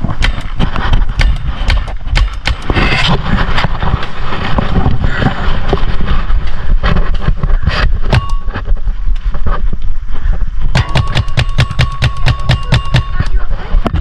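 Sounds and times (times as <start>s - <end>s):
camera rubbing against clothing: 2.6s - 10.3s.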